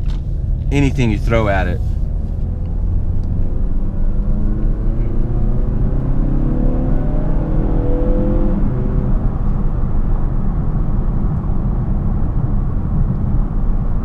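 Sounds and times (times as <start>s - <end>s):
tyre and road noise: 0.0s - 5.8s
car engine accelerating: 0.0s - 12.1s.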